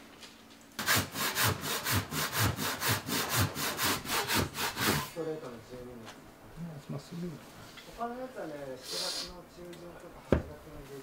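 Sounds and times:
pull saw cutting wood: 0:00.8 - 0:05.1.

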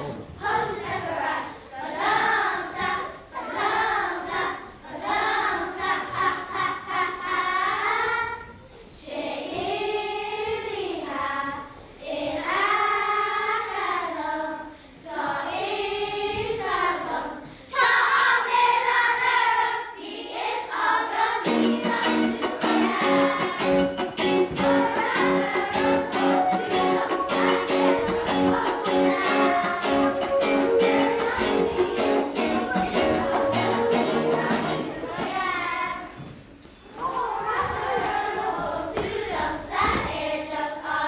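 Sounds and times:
children's choir singing: 0:00.0 - 0:41.0
guitar strumming: 0:21.5 - 0:34.9.

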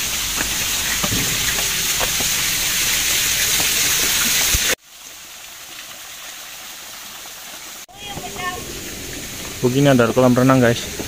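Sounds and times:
footsteps on stone steps: 0:00.0 - 0:04.8
loud hiss of water: 0:00.0 - 0:11.0
water running down fountain wall: 0:00.0 - 0:11.0.

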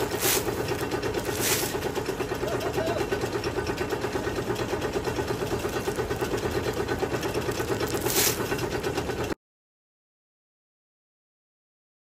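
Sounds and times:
engine pulsing steadily: 0:00.0 - 0:09.4
short rustling hiss: 0:01.3 - 0:01.8, 0:08.0 - 0:08.4.

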